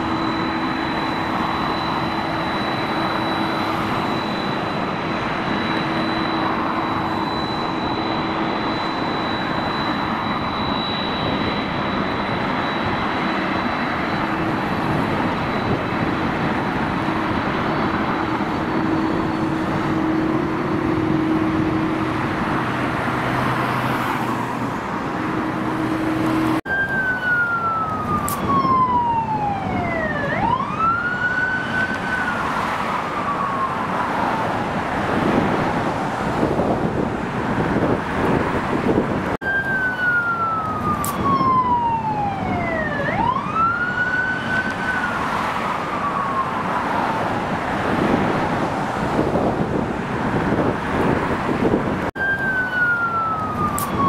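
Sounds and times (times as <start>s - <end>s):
jet airliner passing overhead: 0.0s - 54.0s
steady engine hum: 0.0s - 54.0s.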